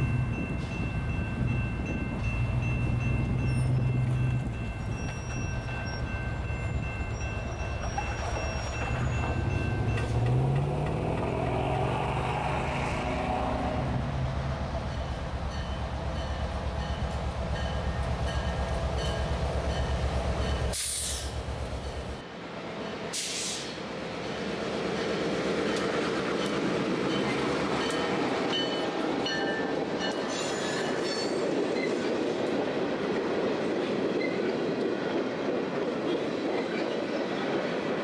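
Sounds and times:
diesel locomotive engine throb: 7.8 - 22.2
short bursts of hiss: 23.2 - 23.8.

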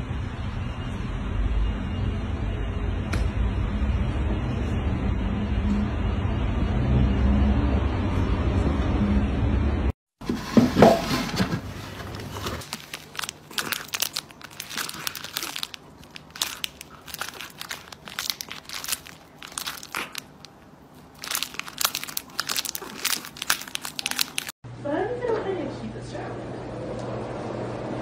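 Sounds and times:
plastic packet crinkling: 12.0 - 24.6.

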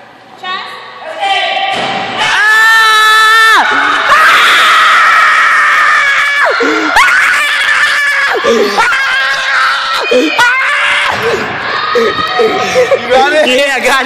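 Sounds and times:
young men screaming excitedly: 2.2 - 13.4.

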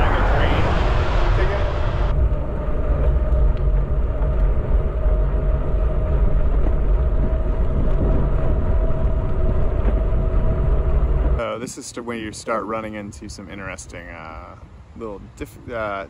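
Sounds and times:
steady thin tone: 0.0 - 2.6
wind noise on microphone: 0.0 - 11.4
tyre road noise: 0.0 - 14.2.

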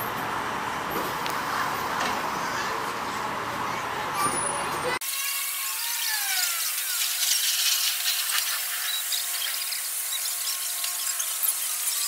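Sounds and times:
streetcar wheels squealing on rails: 4.1 - 5.0.

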